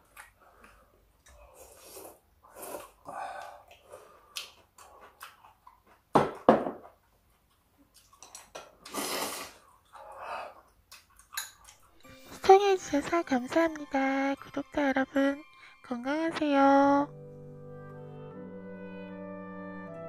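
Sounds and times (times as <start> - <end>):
chewing: 0.0 - 6.1, 7.3 - 12.0.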